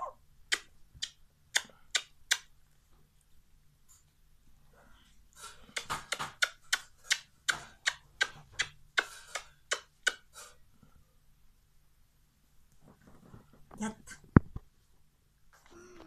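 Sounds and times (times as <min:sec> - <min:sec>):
lips smacking kisses: 0:00.5 - 0:02.5, 0:05.7 - 0:10.3.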